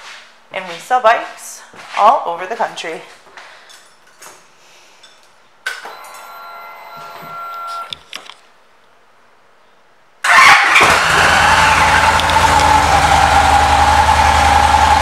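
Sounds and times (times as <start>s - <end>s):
fuel pump whining: 10.2s - 15.0s.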